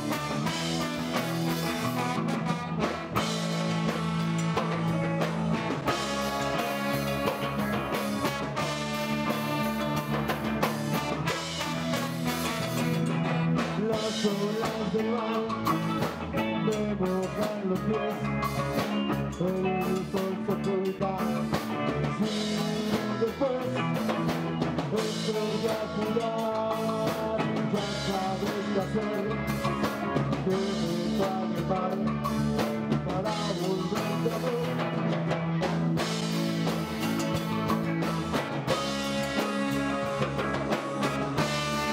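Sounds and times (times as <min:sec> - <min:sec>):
live ska band playing: 0:00.0 - 0:41.9
person singing: 0:10.9 - 0:35.4.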